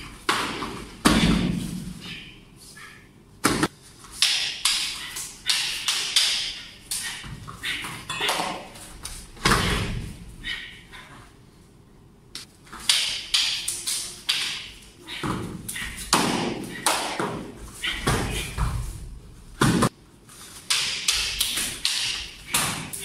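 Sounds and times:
bodies slapping on foam mats: 0.0s - 1.9s, 3.4s - 10.2s, 13.9s - 20.0s.

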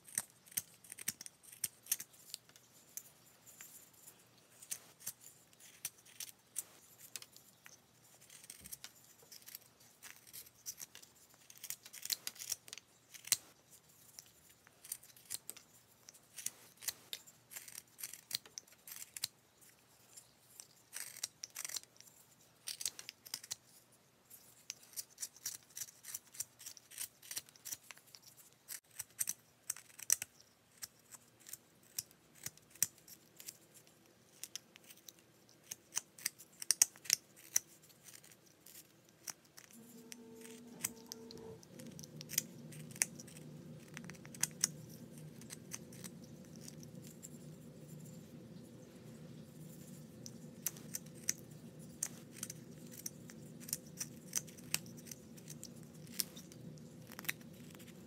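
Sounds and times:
knife carving wood: 0.0s - 58.0s.

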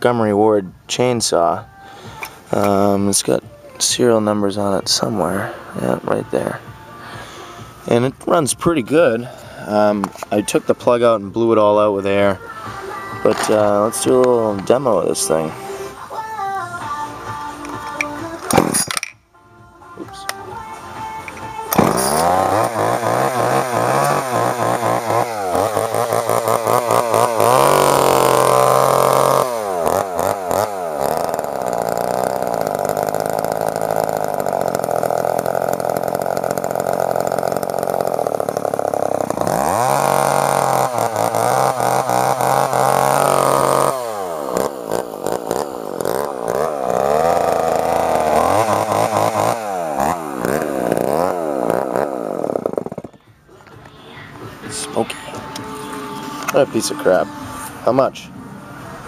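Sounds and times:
chainsaw engine revving: 7.1s - 10.6s, 11.4s - 16.0s, 21.0s - 53.2s.

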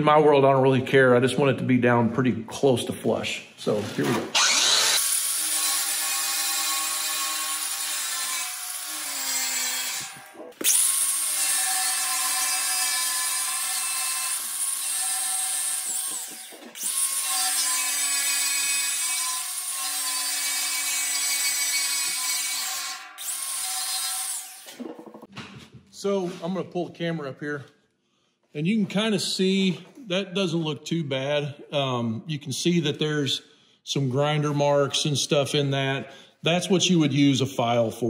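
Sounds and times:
angle grinder whining: 4.3s - 25.3s.

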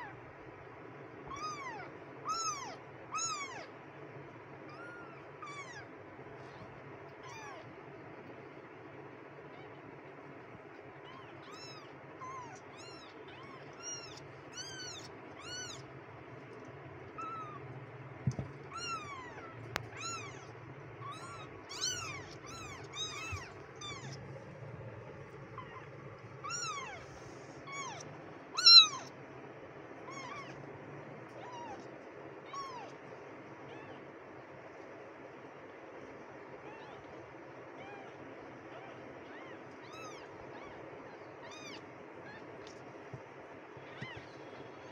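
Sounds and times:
kittens mewing: 1.3s - 3.8s, 4.6s - 7.8s, 10.9s - 16.0s, 17.0s - 29.2s, 29.9s - 34.1s, 36.6s - 44.9s
low hum: 3.9s - 36.5s.

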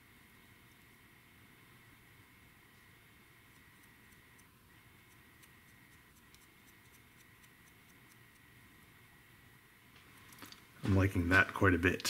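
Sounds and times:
faint high whine: 0.0s - 12.0s
faint ticks: 3.5s - 8.5s.

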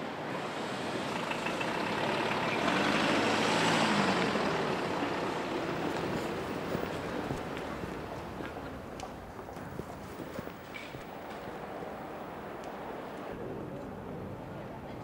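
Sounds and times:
street noise: 0.0s - 15.0s
motor vehicle engine passing: 0.5s - 8.0s.

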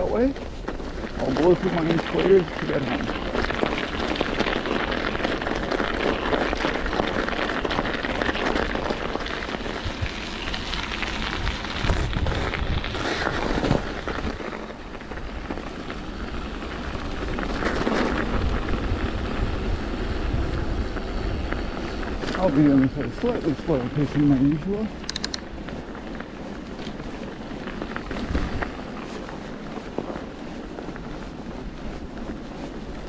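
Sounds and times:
bike tyres crunching on snow: 0.0s - 33.0s.

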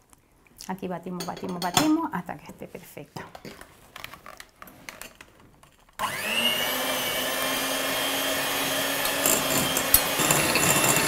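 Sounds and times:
electric mixer motor running: 6.0s - 11.0s.

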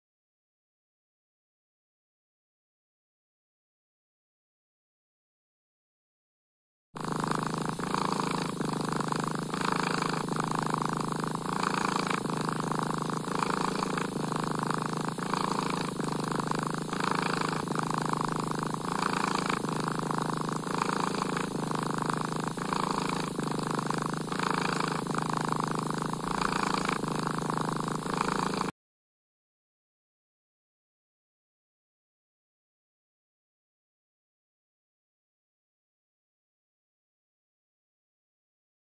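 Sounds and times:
cat purring: 7.0s - 28.8s.

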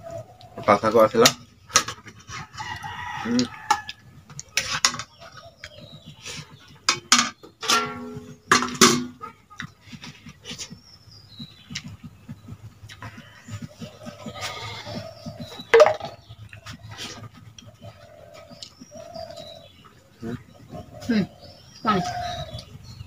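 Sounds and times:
farm animals calling: 9.1s - 23.0s
wet chewing and lip-smacking: 9.5s - 14.1s.

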